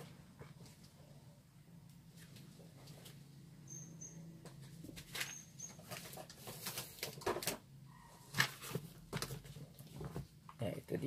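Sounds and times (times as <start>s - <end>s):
paper rustling and shuffling: 4.6s - 7.6s, 8.3s - 10.4s.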